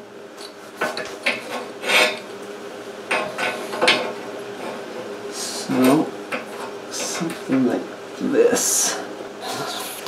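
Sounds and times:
metal scraping on steel tube: 1.4s - 2.2s.

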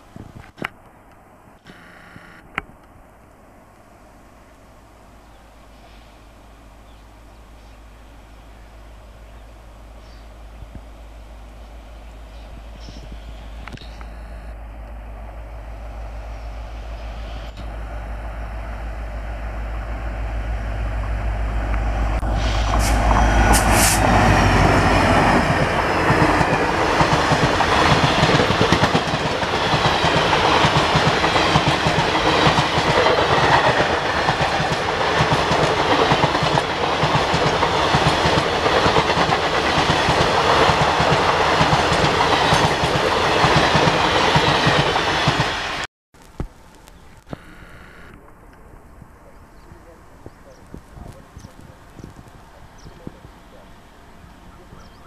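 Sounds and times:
diesel locomotive engine drone: 0.0s - 55.0s
train coaches clattering over rails: 22.7s - 45.6s.

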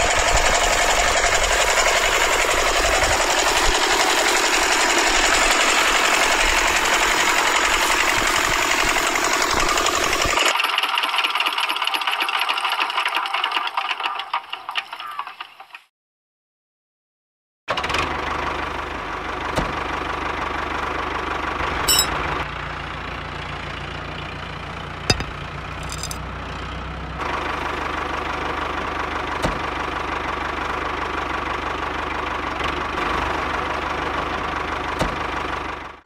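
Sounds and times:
model engine humming: 0.0s - 10.4s.

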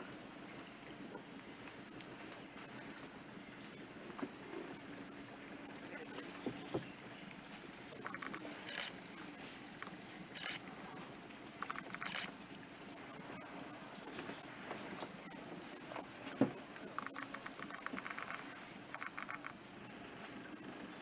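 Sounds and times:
insects droning: 0.0s - 21.0s
fast clicking chirps: 8.0s - 9.0s, 11.6s - 12.4s, 17.0s - 19.6s.

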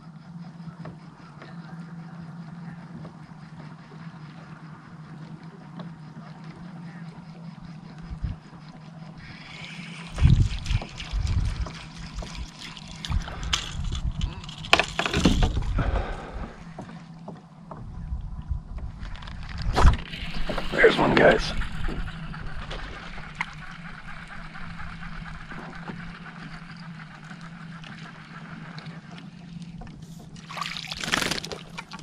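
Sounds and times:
water sloshing against hull: 0.2s - 32.0s.

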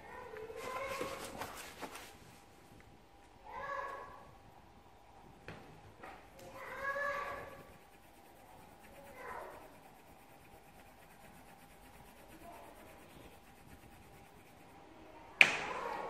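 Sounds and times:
faint scratchy rubbing: 0.2s - 2.3s, 6.2s - 15.3s.

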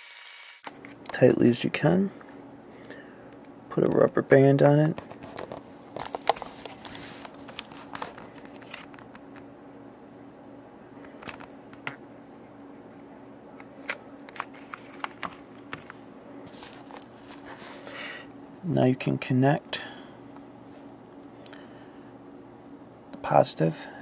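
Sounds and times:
faint steady hum: 0.0s - 24.0s
paper rustling: 5.1s - 9.1s, 13.8s - 18.0s.

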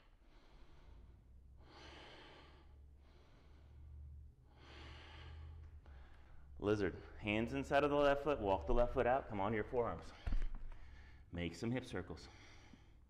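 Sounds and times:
man breathing slowly: 0.0s - 7.2s, 10.0s - 11.3s, 12.2s - 13.0s.

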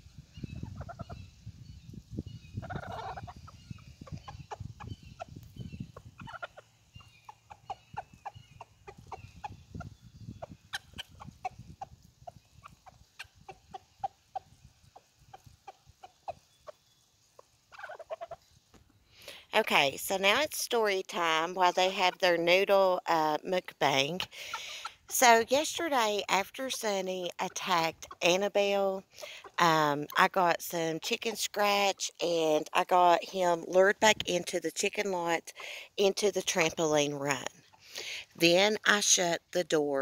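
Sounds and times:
chickens clucking: 0.4s - 1.3s, 2.6s - 19.4s, 20.1s - 32.1s.

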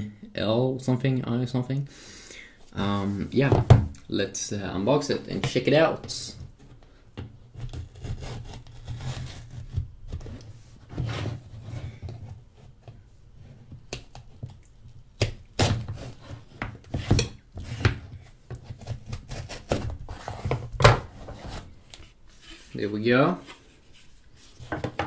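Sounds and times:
knife scraping cardboard: 7.5s - 12.0s, 15.6s - 21.7s.

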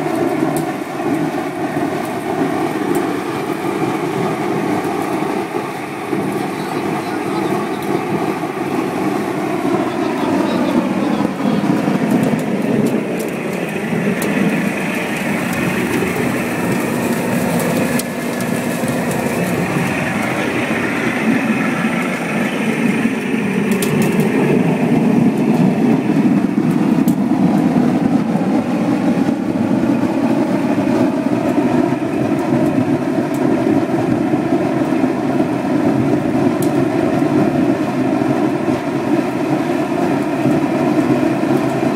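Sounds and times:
burner blower and flame rushing: 0.0s - 41.9s
fan motor whine: 0.0s - 41.9s.

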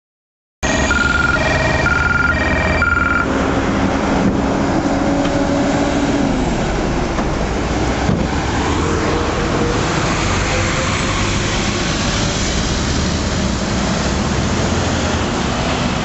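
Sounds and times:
two-tone electronic warning tone: 0.6s - 3.4s
highway traffic roar: 0.6s - 16.0s
truck engine passing: 0.6s - 16.0s.

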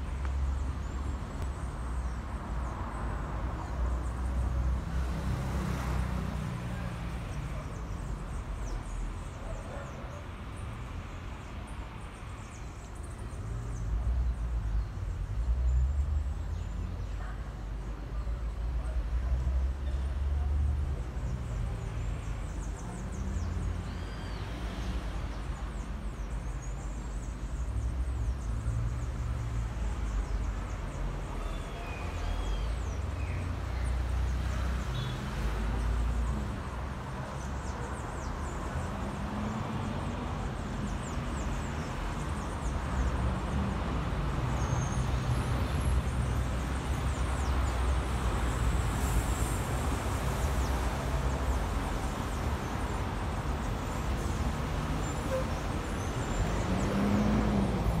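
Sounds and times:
street traffic rumble: 0.0s - 58.0s
engine passing: 56.3s - 58.0s.

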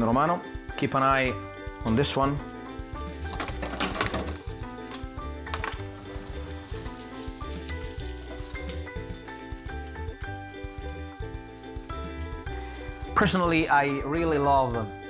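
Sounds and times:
background music: 0.0s - 15.0s
meat sizzling in a frying pan: 0.5s - 15.0s.

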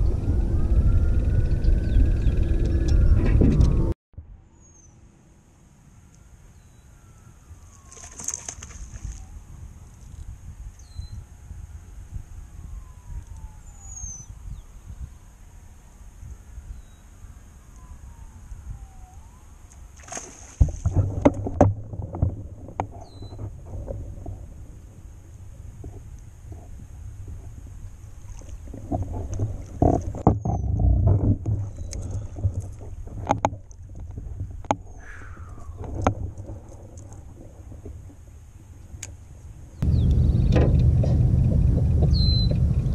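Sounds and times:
wind rumbling on microphone: 0.0s - 5.0s, 6.2s - 42.9s
fish splashing and thrashing: 7.8s - 9.3s, 19.7s - 24.6s, 25.5s - 38.3s.

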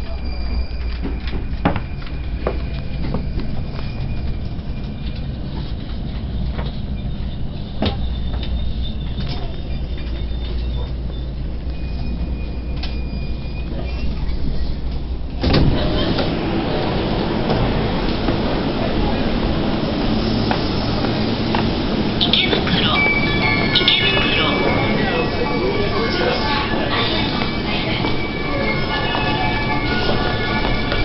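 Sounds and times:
faint high-pitched squeals: 0.0s - 5.9s, 6.6s - 15.0s
train interior low rumble: 0.0s - 31.0s
platform noise: 20.9s - 31.0s.

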